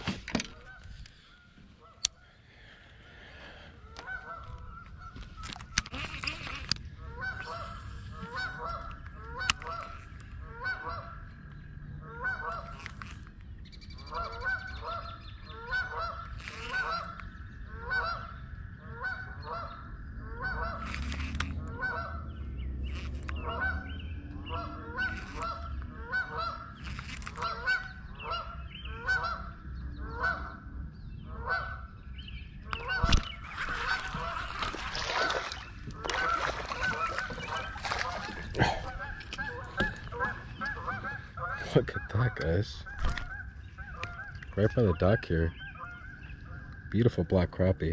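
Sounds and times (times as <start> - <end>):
geese honking: 3.8 - 11.4, 12.0 - 13.0, 14.0 - 30.7, 31.3 - 31.9, 32.7 - 47.0
water splashing: 32.9 - 41.6.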